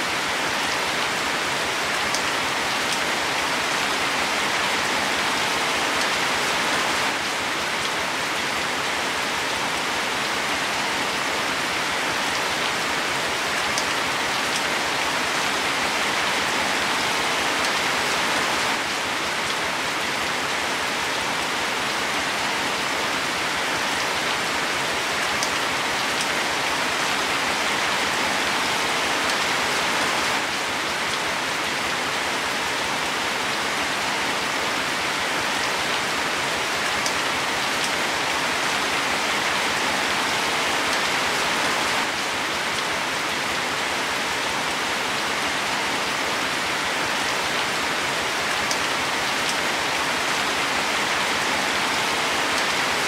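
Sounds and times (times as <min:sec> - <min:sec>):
rain falling on leaves: 0:00.0 - 0:53.0.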